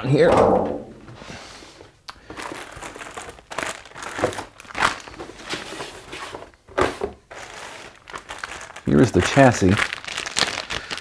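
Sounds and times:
plastic bags crinkling: 2.1 - 6.6, 7.3 - 11.0.

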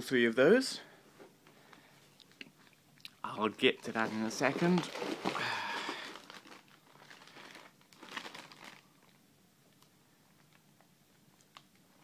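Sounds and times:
plastic bags crinkling: 3.6 - 9.2.

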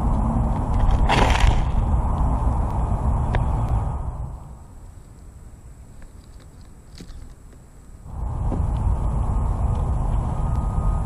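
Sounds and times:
low background rumble: 0.0 - 11.0.

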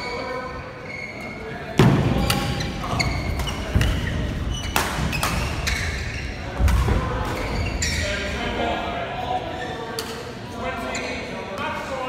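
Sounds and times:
shoes squeaking on court floor: 0.0 - 1.6, 2.2 - 6.6, 7.2 - 8.2.

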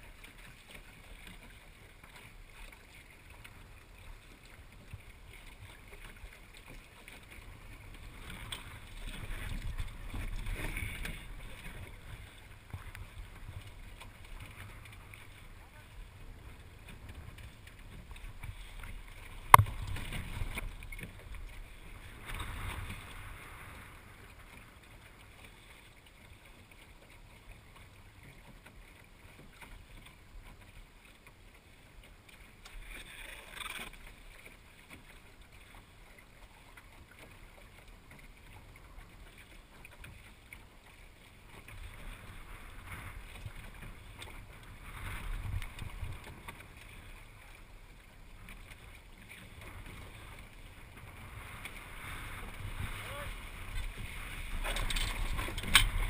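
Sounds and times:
water washing along a hull: 0.0 - 56.0
wind gusts on the microphone: 41.8 - 47.6, 49.6 - 56.0.

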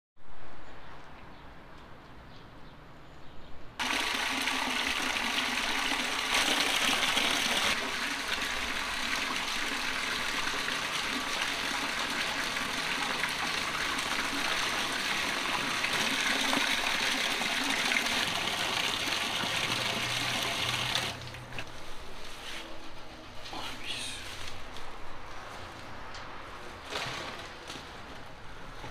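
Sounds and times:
water gushing into steel bowl: 3.8 - 21.4.

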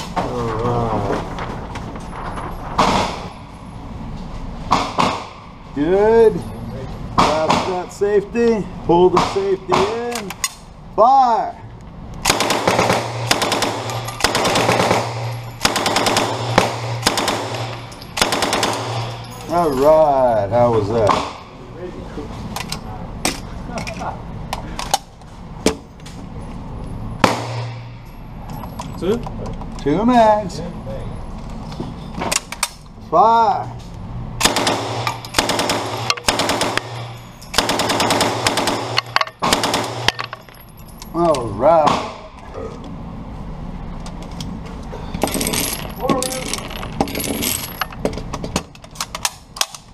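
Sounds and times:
submachine gun bursts echoing indoors: 12.3 - 19.3, 34.4 - 40.2.

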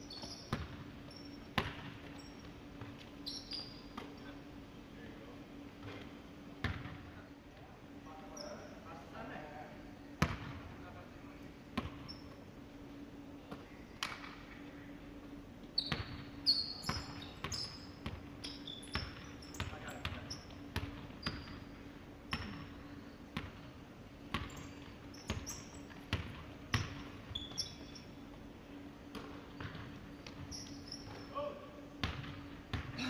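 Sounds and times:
sneakers squeaking on wood: 0.0 - 4.2, 15.8 - 21.8, 24.4 - 26.2, 26.8 - 28.4, 29.2 - 31.4
steady low hum: 0.0 - 33.0.

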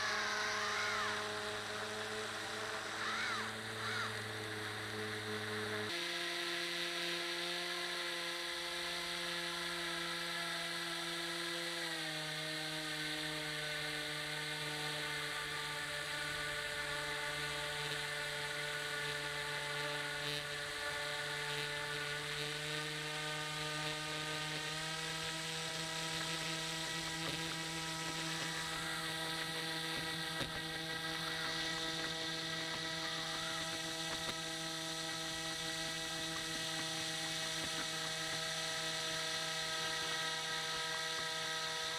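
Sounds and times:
model boat motor whining: 0.0 - 41.9.

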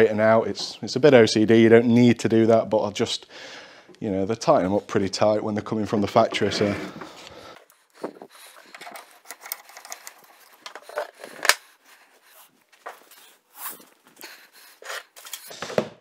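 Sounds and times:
cable rubbing and knocking: 6.0 - 7.3, 7.9 - 12.0.

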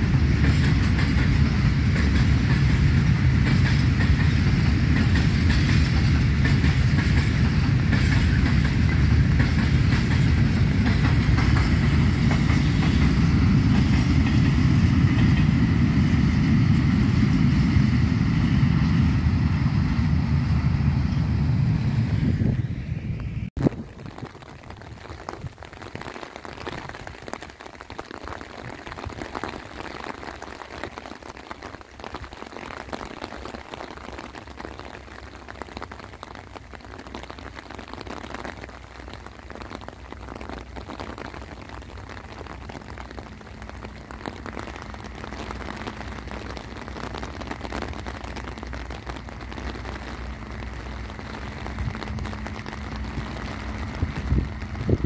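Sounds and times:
steady rain patter: 0.0 - 22.1, 23.5 - 55.0
diesel locomotive rumble: 0.0 - 23.5, 48.9 - 55.0.

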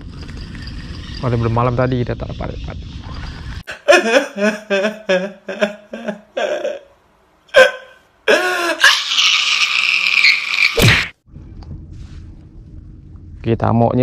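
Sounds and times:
man sobbing: 3.7 - 9.4.

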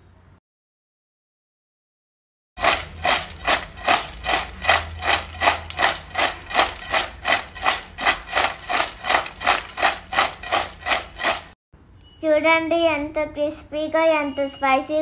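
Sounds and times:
chips scraping in steel bowl: 2.6 - 11.6.

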